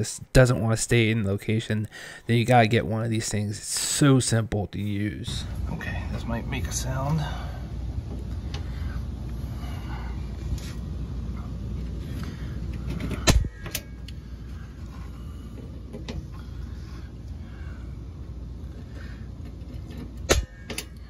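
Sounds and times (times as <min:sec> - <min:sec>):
center punch snapping on metal: 0:13.2 - 0:13.9, 0:20.2 - 0:21.0.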